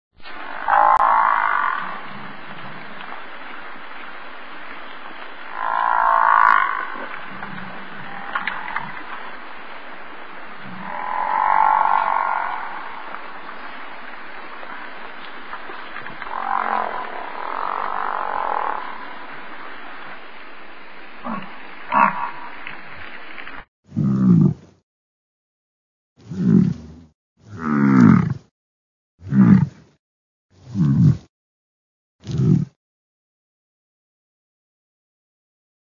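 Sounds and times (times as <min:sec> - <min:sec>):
steady background hiss: 0:00.3 - 0:23.6
bison grunting: 0:05.5 - 0:09.4, 0:21.2 - 0:22.5, 0:23.9 - 0:24.6, 0:26.3 - 0:28.4, 0:29.2 - 0:29.8, 0:30.6 - 0:31.2.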